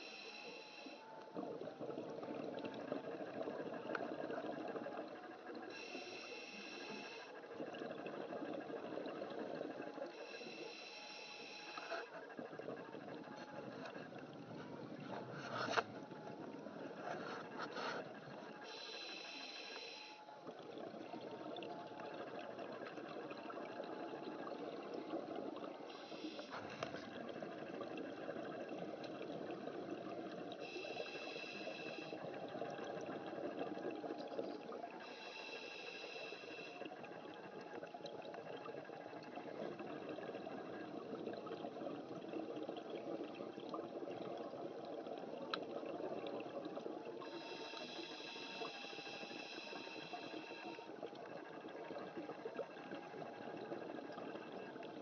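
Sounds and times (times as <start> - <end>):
regulator hiss: 0.0 - 1.0, 5.7 - 7.3, 10.2 - 12.1, 18.6 - 20.2, 25.9 - 26.8, 30.6 - 32.2, 35.0 - 36.9, 47.2 - 50.9
underwater exhaled bubbles: 1.2 - 10.7, 19.8 - 55.0.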